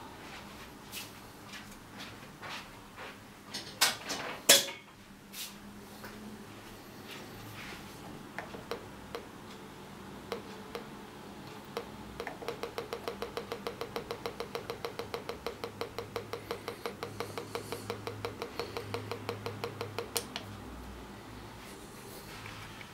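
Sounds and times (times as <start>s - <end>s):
metal detector electronic ticks: 10.3s - 10.9s, 11.6s - 20.5s
scattered clicks: 10.3s - 20.6s.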